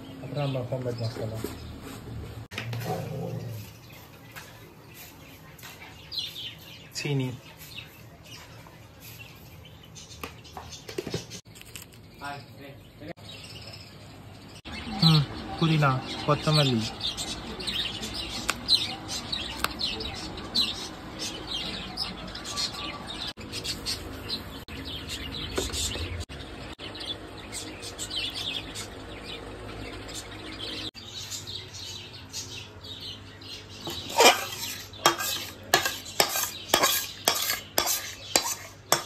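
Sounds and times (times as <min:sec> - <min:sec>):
small birds chirping: 0:00.0 - 0:39.0
metal ladle scraping a pan: 0:33.9 - 0:39.0.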